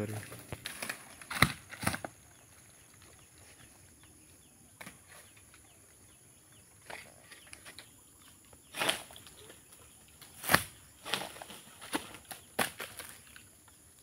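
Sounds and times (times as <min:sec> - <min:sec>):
sickle scraping among palm fronds: 0:00.0 - 0:03.7, 0:08.6 - 0:13.5.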